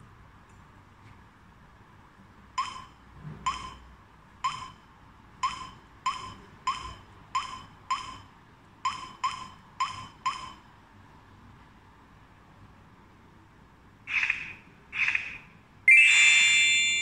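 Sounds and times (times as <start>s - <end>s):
keypad beeps: 2.6s - 4.8s, 5.4s - 8.3s, 8.9s - 10.6s.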